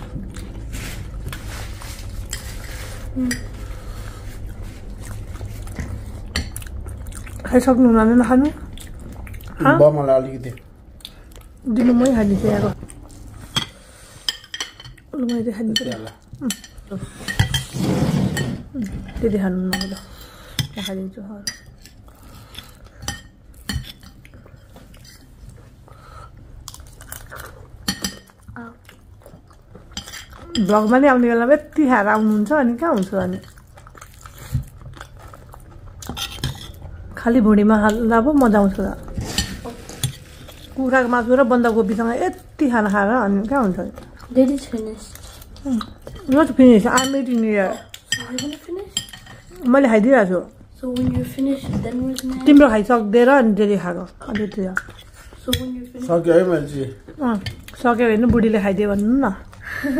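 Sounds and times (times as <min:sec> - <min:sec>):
fork scraping on ceramic plate: 0:17.2 - 0:18.7.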